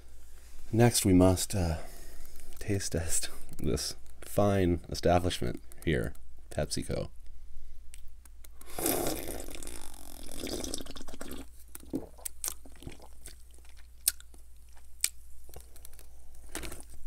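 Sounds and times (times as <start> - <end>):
wet mouth clicks: 7.9 - 16.0
sipping fizzy soda: 8.6 - 13.8
swallowing: 8.6 - 14.2.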